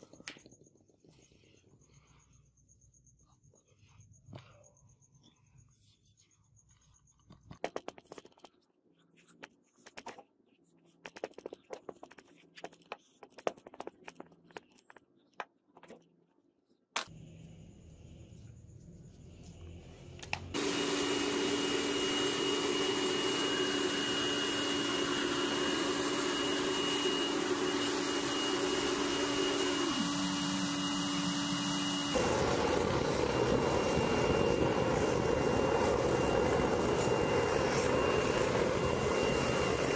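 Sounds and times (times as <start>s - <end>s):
tool tapping and scraping sand: 5.8s - 16.1s
gas burner hissing: 20.4s - 39.9s.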